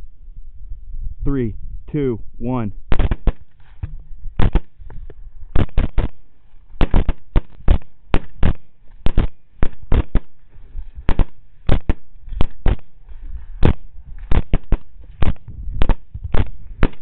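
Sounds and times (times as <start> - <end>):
rifle fire volley: 2.9 - 4.8, 5.5 - 17.0.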